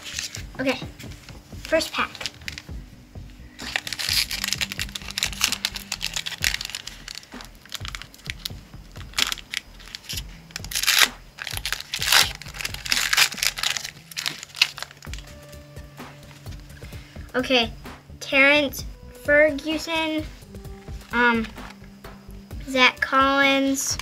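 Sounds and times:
background music: 0.0 - 24.0
wrapper tearing and crinkling: 2.0 - 2.7, 3.5 - 15.3.

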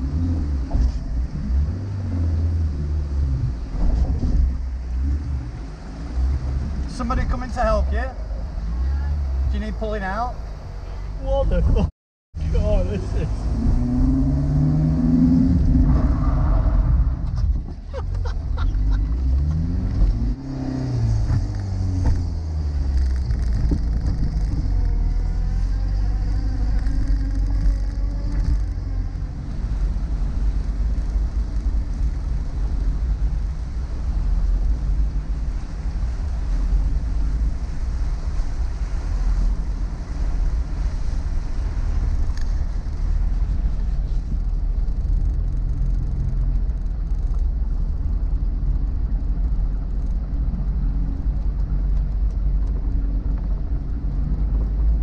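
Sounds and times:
tyres on wet road: 0.0 - 55.0
car engine revving through gears: 13.0 - 17.3, 18.8 - 32.1.

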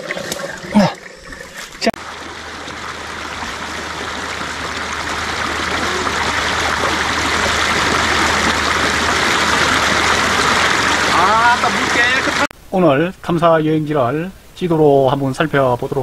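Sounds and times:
mountain stream rushing: 0.0 - 12.5.

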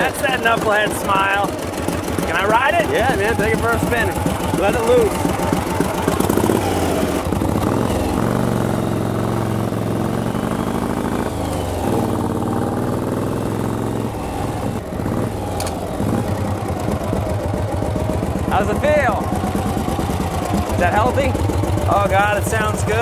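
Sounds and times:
motorcycle engine pulling away: 0.0 - 23.0.

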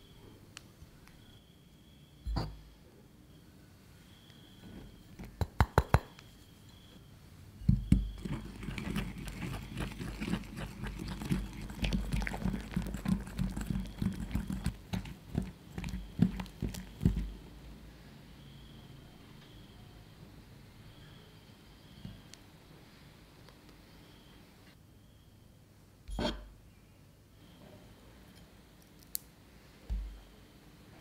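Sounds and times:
whisk scraping a ceramic bowl: 8.1 - 17.3.

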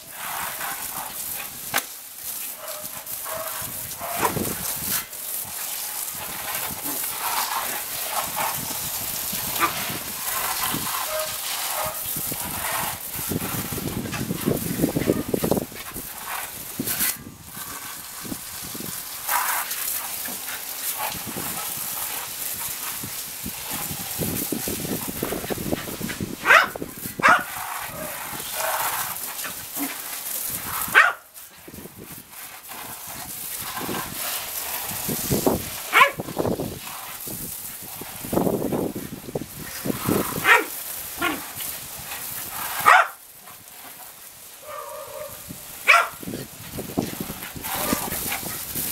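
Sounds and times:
hose water splattering on concrete: 0.0 - 48.9
dog barking and yipping: 2.6 - 4.4, 10.9 - 12.0, 26.4 - 28.9, 30.9 - 31.3, 35.9 - 36.2, 40.4 - 41.4, 42.8 - 43.2, 44.6 - 46.2, 47.8 - 48.4.

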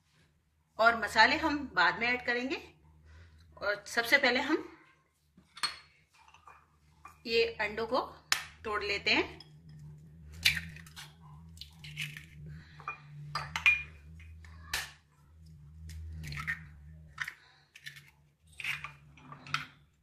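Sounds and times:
spoon cracking eggshells: 10.4 - 12.4, 15.9 - 19.8.

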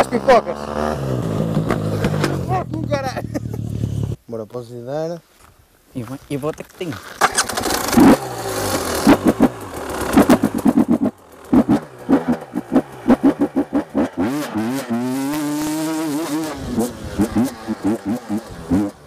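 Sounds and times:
dirt bike engine revving: 0.0 - 4.2, 7.2 - 19.0.

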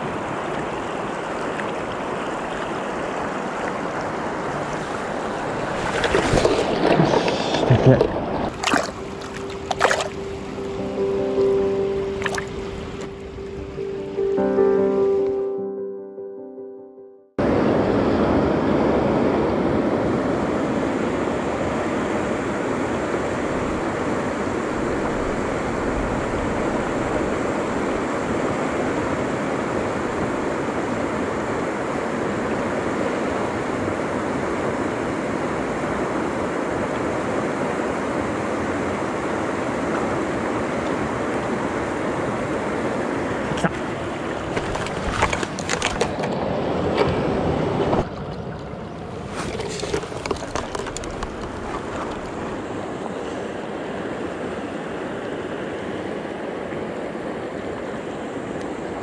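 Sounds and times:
water rushing over rocks: 0.0 - 10.8, 11.5 - 13.2, 43.4 - 46.4, 48.0 - 53.5.

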